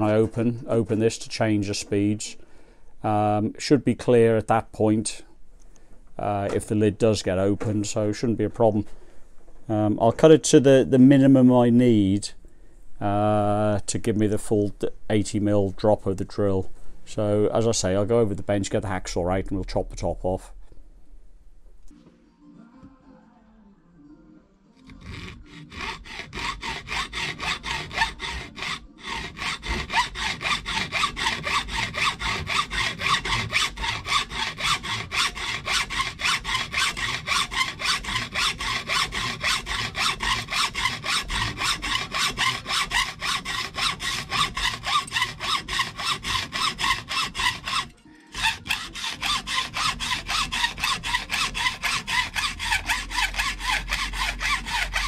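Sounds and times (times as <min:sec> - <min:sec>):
hacksaw cutting metal: 0:24.9 - 0:55.0.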